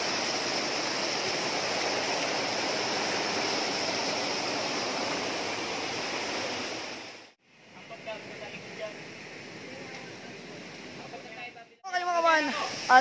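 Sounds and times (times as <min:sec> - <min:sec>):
waterfall rushing over rocks: 0:00.0 - 0:07.4, 0:11.9 - 0:13.0.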